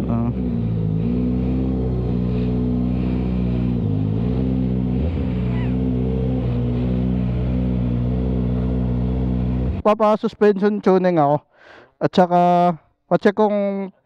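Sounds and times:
motorcycle engine running: 0.0s - 9.9s.

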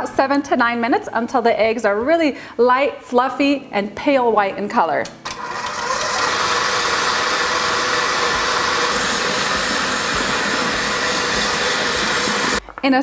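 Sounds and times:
stand mixer whirring: 5.3s - 12.6s.

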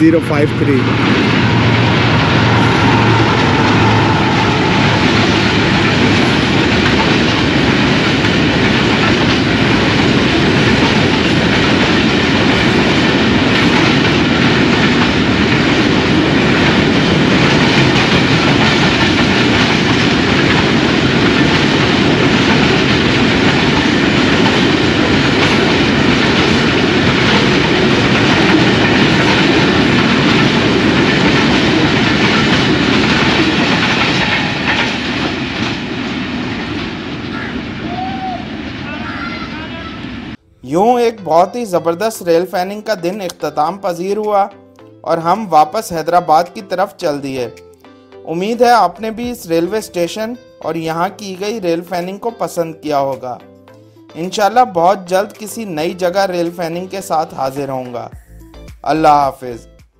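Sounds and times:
train wheels clattering on rails: 0.0s - 40.3s
diesel locomotive passing: 0.0s - 59.1s.

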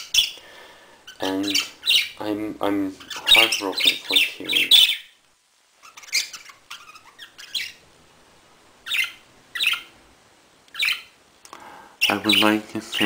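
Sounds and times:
budgerigar chirping: 0.0s - 0.4s, 1.1s - 2.2s, 3.0s - 5.2s, 5.8s - 7.8s, 8.8s - 9.9s, 10.7s - 11.2s.

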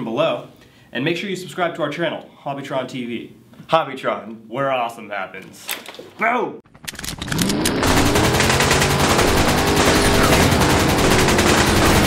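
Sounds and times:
automatic gunfire: 7.1s - 12.0s.

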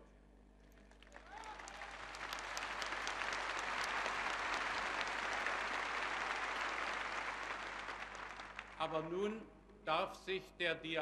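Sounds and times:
crowd applauding: 0.7s - 9.0s.

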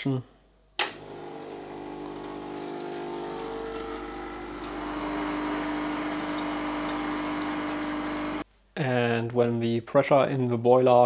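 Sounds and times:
espresso pump buzzing: 0.8s - 8.4s
water splashing into jug: 1.0s - 8.4s.

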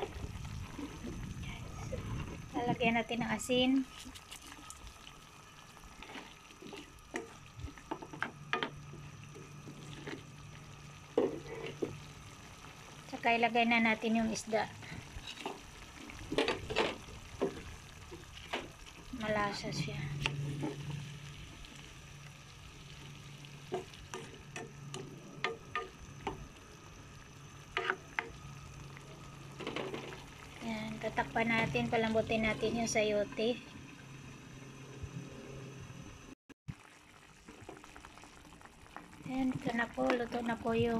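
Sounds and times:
faint sizzle: 0.0s - 40.9s
low steady hum: 0.0s - 40.9s
spoon scraping and knocking pan: 23.7s - 26.4s, 27.8s - 28.4s
spatula knocking and scraping pan: 27.8s - 28.3s.

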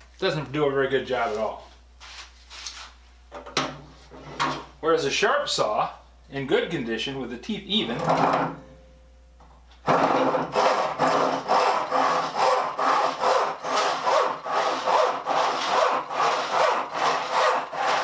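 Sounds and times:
handsaw cutting board: 9.9s - 18.0s.

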